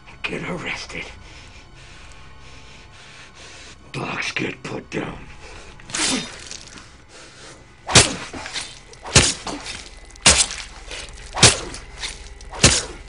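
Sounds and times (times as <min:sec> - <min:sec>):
meat cleaver chopping into body: 0:07.9 - 0:13.0.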